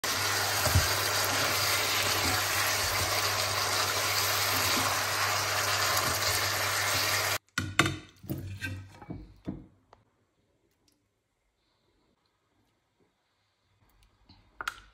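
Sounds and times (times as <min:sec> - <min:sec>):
chicken sizzling in a frying pan: 0:00.0 - 0:07.4.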